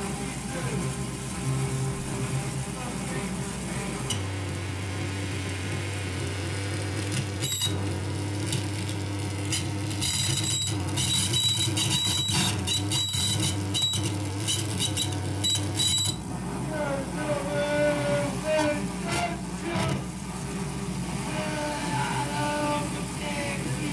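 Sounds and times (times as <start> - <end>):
harsh electronic noise bursts: 0.0 - 23.9
steady low hum: 0.0 - 23.9.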